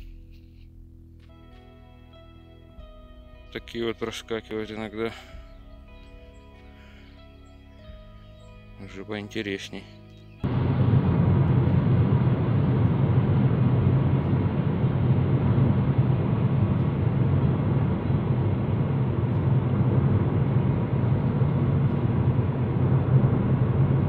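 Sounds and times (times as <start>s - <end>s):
car driving on highway: 10.4s - 24.0s.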